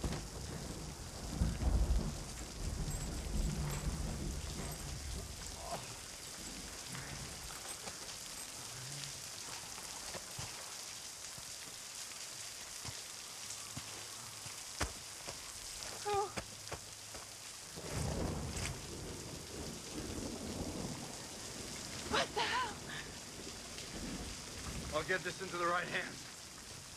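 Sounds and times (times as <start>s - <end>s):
low rumble of thunder: 0.0s - 8.3s, 17.7s - 26.9s
heavy rain on pavement: 0.0s - 26.9s.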